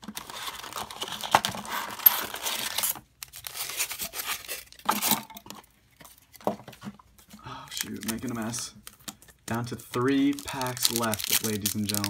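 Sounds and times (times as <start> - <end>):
wrapper tearing: 0.0 - 5.2, 7.7 - 9.0, 9.6 - 12.0
plastic wrappers crinkling: 7.5 - 12.0.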